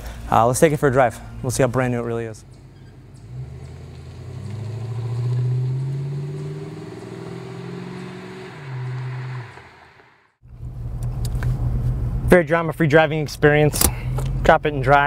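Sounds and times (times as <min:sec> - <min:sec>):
car engine driving off: 0:02.6 - 0:11.2.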